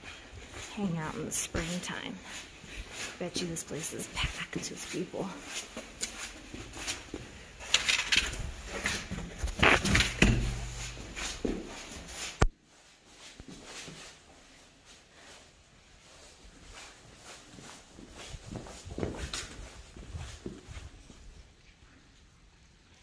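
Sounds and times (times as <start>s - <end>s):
clothing scraping against rock: 8.3s - 12.4s.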